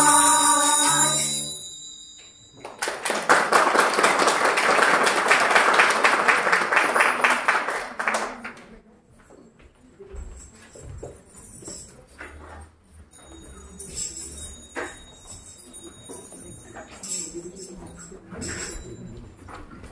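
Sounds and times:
children's choir singing: 0:00.0 - 0:01.6
audience applauding: 0:02.6 - 0:08.7.

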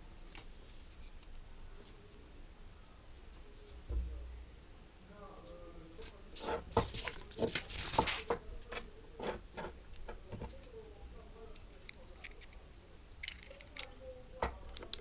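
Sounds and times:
paper rustling: 0:06.0 - 0:08.9
metal parts clicking and tapping: 0:13.2 - 0:15.0.

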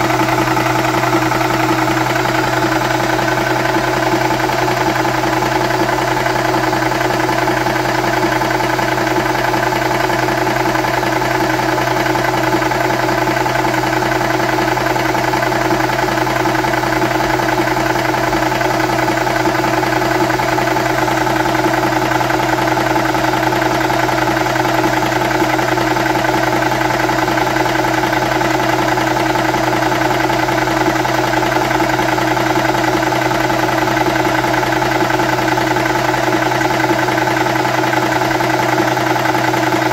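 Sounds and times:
air compressor humming: 0:00.0 - 0:12.8.

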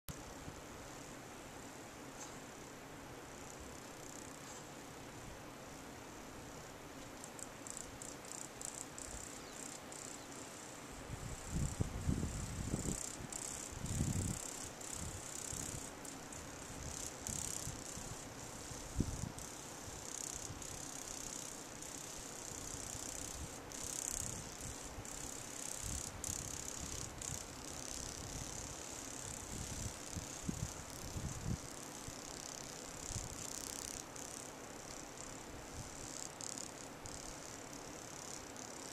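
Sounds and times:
insect chorus: 0:00.1 - 0:38.9
wind buffeting microphone: 0:11.2 - 0:14.4.

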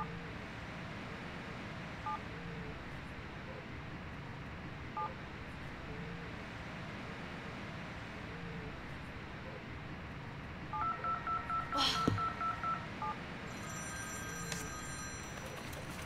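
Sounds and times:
keypad beeps: 0:10.8 - 0:13.2.

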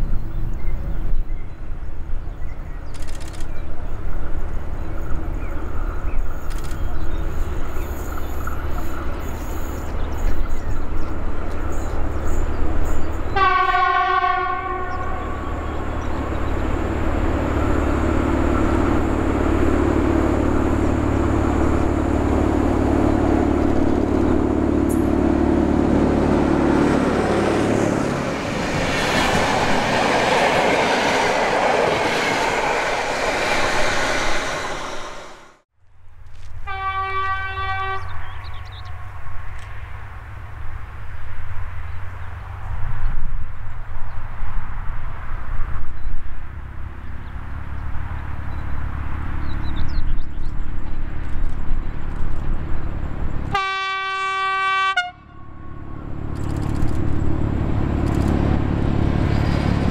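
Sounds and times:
diesel locomotive engine: 0:00.0 - 0:59.9
locomotive horn blast: 0:13.3 - 0:15.9, 0:36.6 - 0:40.2, 0:53.5 - 0:56.1.

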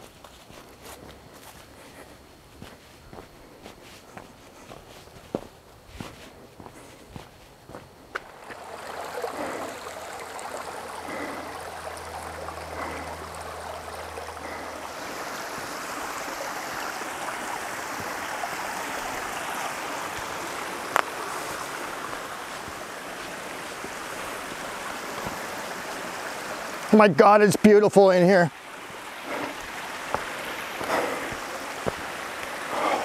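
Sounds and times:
stream babbling over rocks: 0:07.7 - 0:33.0.

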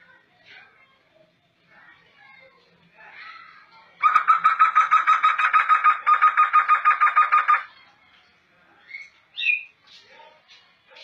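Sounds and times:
bird singing repeated notes: 0:04.0 - 0:07.7, 0:08.8 - 0:10.0.

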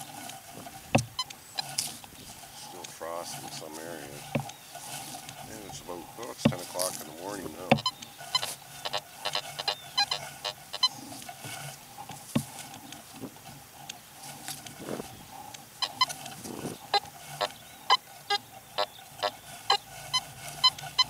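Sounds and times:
metal detector beeps: 0:07.6 - 0:11.0, 0:15.8 - 0:16.2, 0:16.9 - 0:21.0.

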